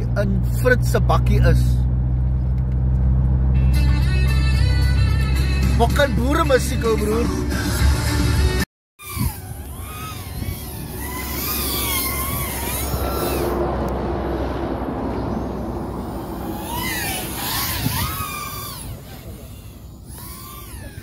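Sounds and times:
drone motors whining: 9.0 - 21.0.

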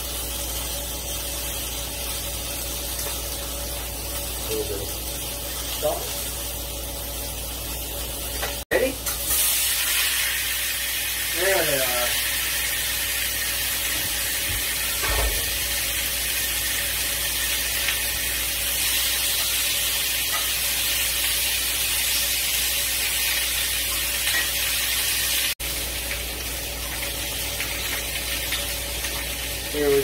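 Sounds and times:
food sizzling in skillets: 0.0 - 30.0.

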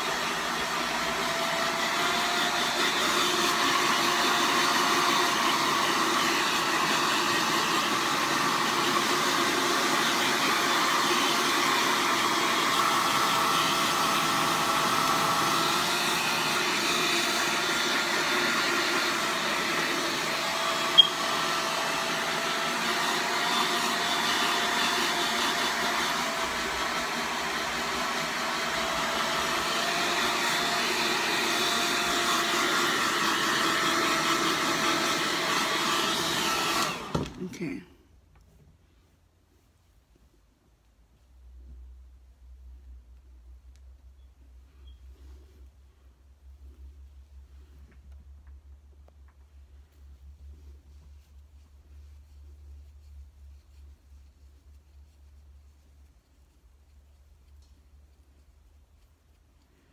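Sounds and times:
hair dryer running: 0.0 - 37.8.

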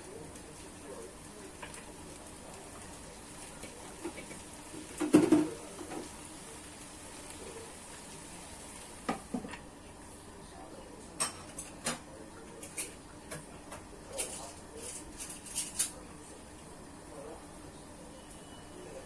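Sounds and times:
faint steady hiss: 0.0 - 19.0
ticks and pops from pan: 1.5 - 1.9, 3.6 - 6.1.

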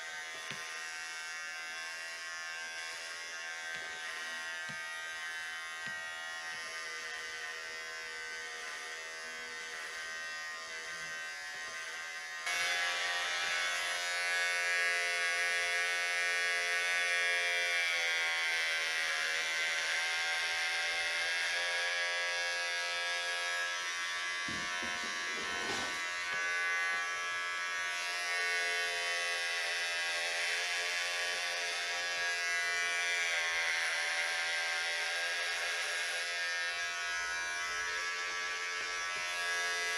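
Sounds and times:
electric hair clippers buzzing: 0.0 - 39.9.

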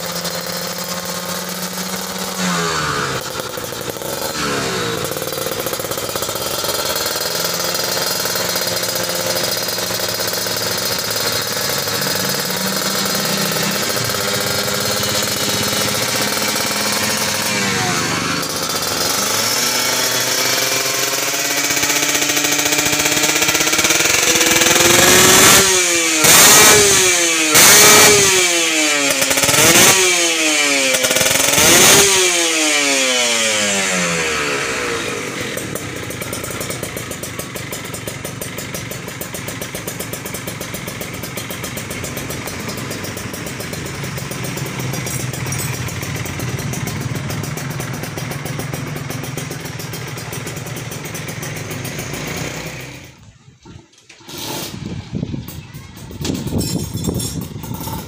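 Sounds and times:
two-stroke engine revving and idling: 0.0 - 58.0.

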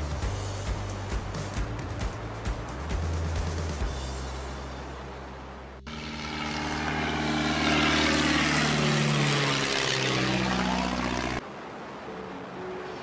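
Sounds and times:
biplane engine drone flying past: 3.5 - 13.0.

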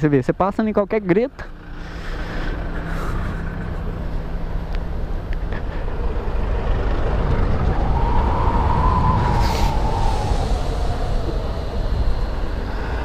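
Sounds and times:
motorcycle low rumble: 0.0 - 13.0
electric motor whine rising: 2.0 - 13.0
wind on microphone: 5.9 - 13.0.

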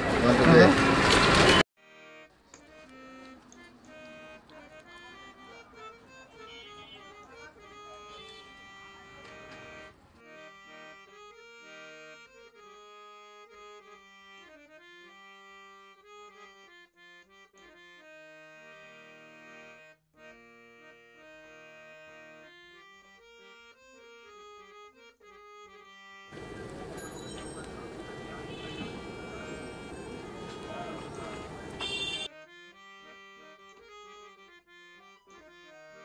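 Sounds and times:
quiet instrumental music: 1.8 - 18.9, 20.8 - 36.0.

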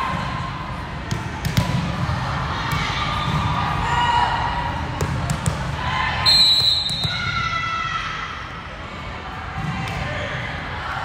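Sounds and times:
ball bouncing on court floor: 1.1 - 2.0, 5.0 - 5.7
faint indistinct voices: 7.1 - 11.0.

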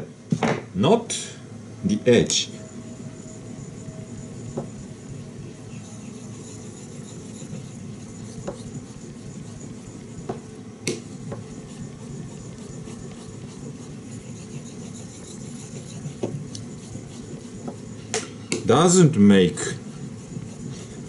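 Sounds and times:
knife scraping on wet whetstone: 5.5 - 10.2, 10.9 - 18.1, 19.6 - 21.0.

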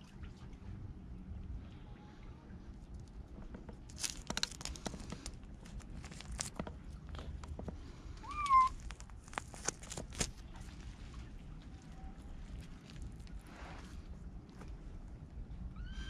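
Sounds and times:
cat meowing: 8.2 - 8.8.

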